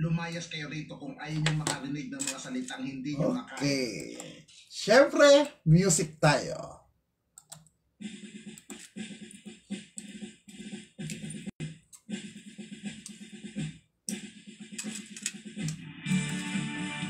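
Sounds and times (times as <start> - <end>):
music with choppy rhythmic beat: 7.9 - 17.0.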